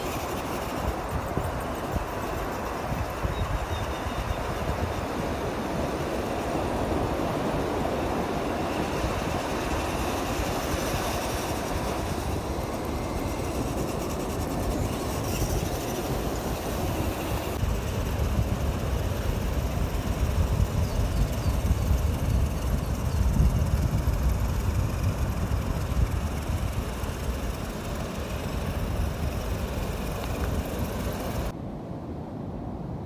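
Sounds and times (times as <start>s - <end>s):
surf rumbling: 0.0s - 31.6s
wind buffeting microphone: 0.0s - 31.6s.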